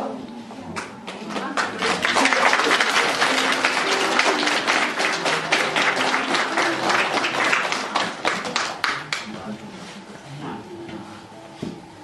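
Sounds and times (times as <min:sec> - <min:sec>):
audience applauding: 0:00.8 - 0:09.5.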